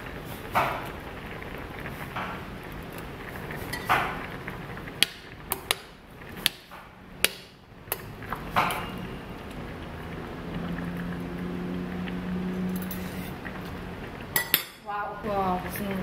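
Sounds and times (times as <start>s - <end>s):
metal spoon clinking on saucepan: 14.4s - 14.8s.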